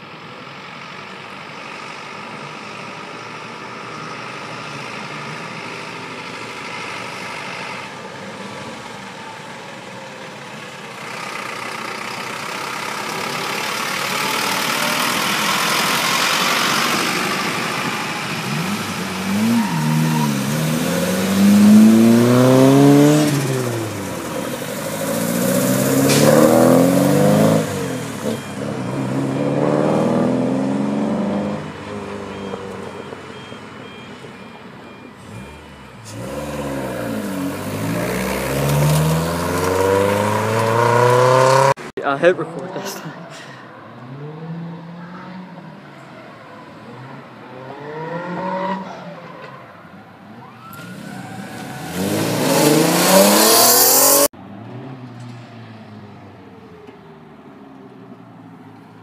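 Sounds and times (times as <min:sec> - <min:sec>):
cars driving past: 0:00.0 - 0:59.0
engines accelerating past: 0:12.4 - 0:34.1, 0:34.9 - 0:49.6, 0:50.4 - 0:57.2.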